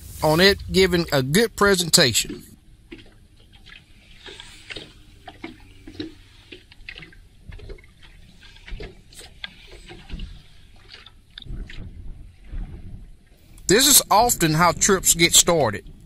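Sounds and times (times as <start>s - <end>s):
water lapping against boat hull: 0.3s - 16.0s
wind rumble on microphone: 11.3s - 15.1s.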